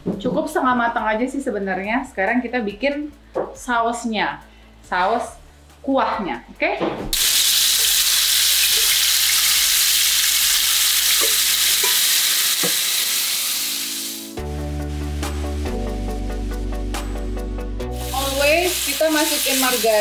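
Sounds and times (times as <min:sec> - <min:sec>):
background music: 0:00.0 - 0:20.0
sauce sizzling in oil: 0:07.2 - 0:15.7, 0:17.8 - 0:20.0.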